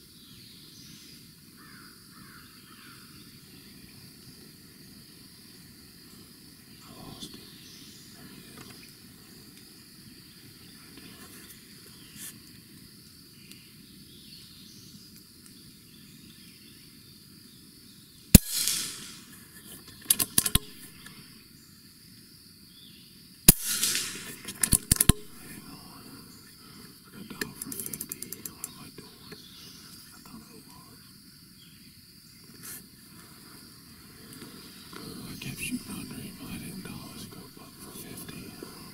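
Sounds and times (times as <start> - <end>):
air rifle shot crack: 18.3 - 19.4, 20.2 - 21.1, 23.5 - 25.8
clicks: 18.4 - 21.2, 23.5 - 25.6, 27.3 - 29.4.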